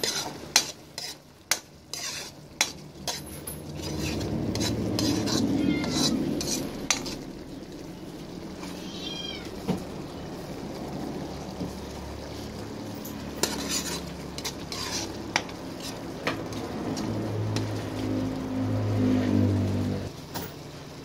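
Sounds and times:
sauce bubbling and sizzling: 0.0 - 21.0
cat meowing: 5.2 - 6.4, 8.6 - 9.7.

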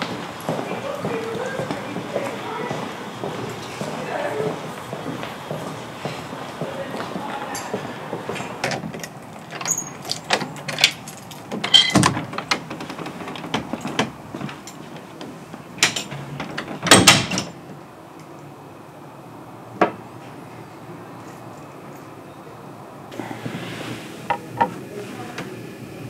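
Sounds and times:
keys jingling in door lock: 8.7 - 15.0, 15.8 - 17.6.

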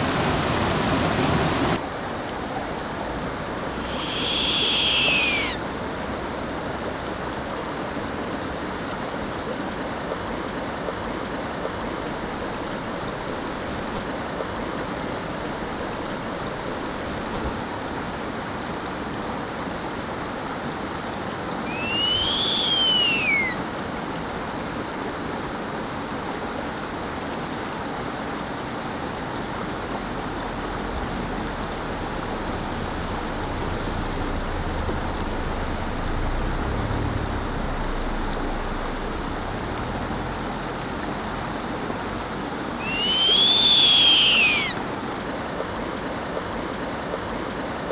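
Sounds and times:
young owl calling: 3.8 - 5.6, 21.6 - 23.6, 42.8 - 44.8.

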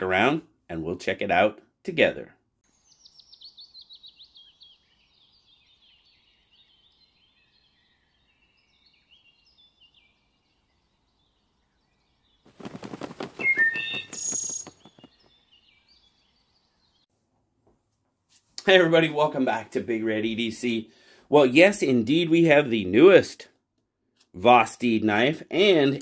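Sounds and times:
burst of rapid bird pulses: 12.4 - 15.3
bird chips: 12.4 - 15.8
cardinal whistling song: 12.8 - 16.2.

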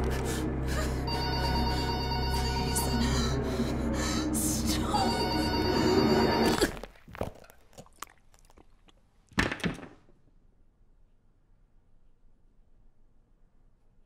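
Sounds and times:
ringing bell-like drone: 1.1 - 3.8, 4.4 - 6.6.

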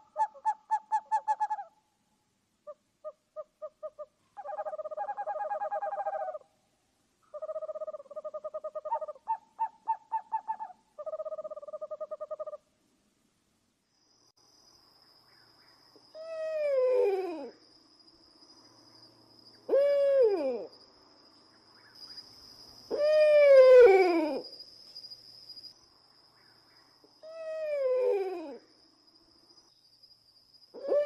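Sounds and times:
owl hooting: 0.0 - 1.8, 2.6 - 6.5, 7.3 - 12.6, 16.1 - 17.6, 19.6 - 20.7, 22.9 - 24.6, 27.2 - 28.7, 30.7 - 31.0.

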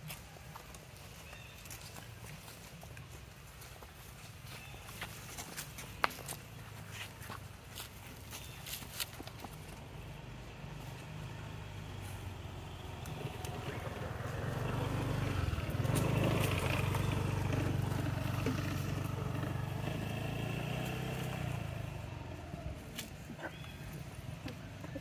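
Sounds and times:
passing vehicle engine: 5.6 - 25.0.

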